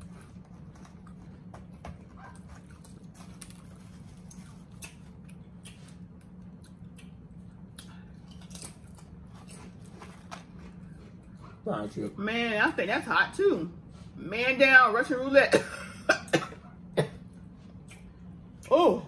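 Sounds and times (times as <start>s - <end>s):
tortilla chips crunching: 0.0s - 11.4s
steady low hum: 0.0s - 19.0s.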